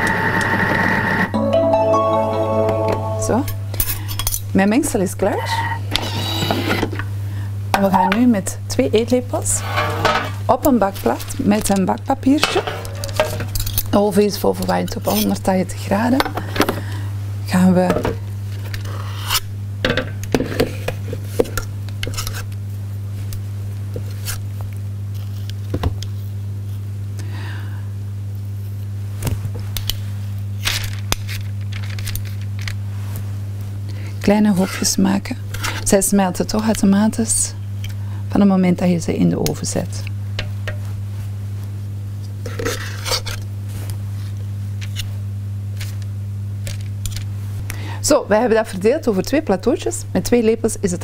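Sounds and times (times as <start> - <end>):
steady low hum: 0.9 - 51.0
metal spoons scraping a steel bowl: 9.5 - 10.4.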